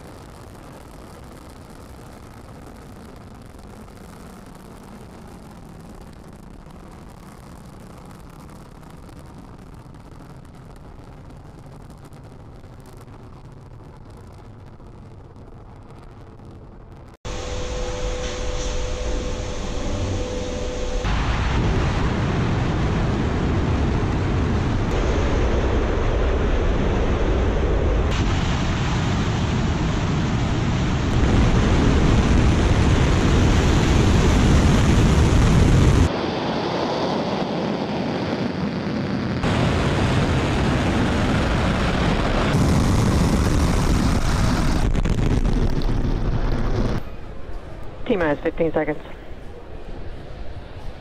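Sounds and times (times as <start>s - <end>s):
rocket engines rumbling: 0.0s - 51.0s
steady tone: 17.3s - 22.0s.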